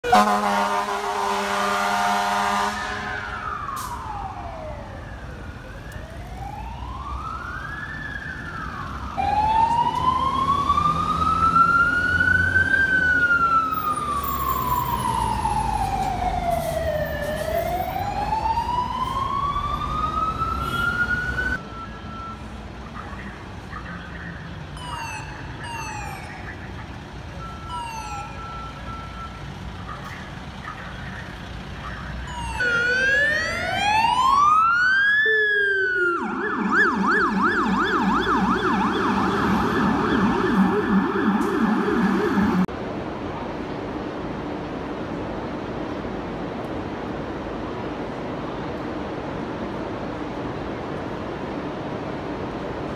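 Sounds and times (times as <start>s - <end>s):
fire engine sirens wailing: 0.0s - 42.7s
siren with falling tones: 3.3s - 22.4s, 27.4s - 29.4s, 32.2s - 42.7s.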